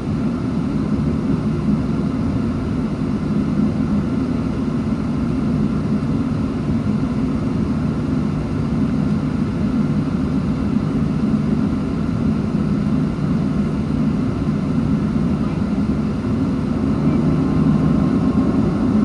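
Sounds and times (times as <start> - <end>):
jet engines idling: 0.0 - 19.0.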